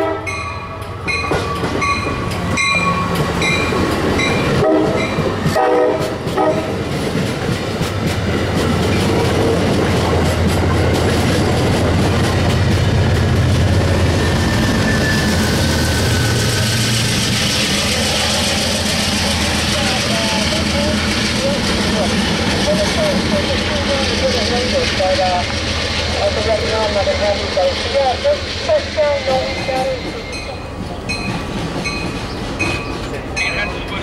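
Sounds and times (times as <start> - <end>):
train horn: 0.0 - 0.4, 4.4 - 6.8
train wheels rumbling on rails: 0.0 - 34.0.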